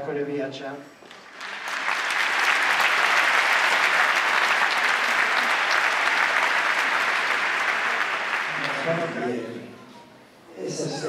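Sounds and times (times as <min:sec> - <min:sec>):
audience applauding: 0:01.0 - 0:09.4.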